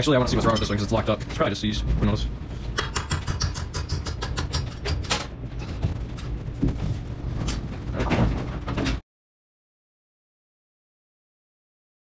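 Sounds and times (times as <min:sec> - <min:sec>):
metal clicking and clanking: 0:02.8 - 0:09.0.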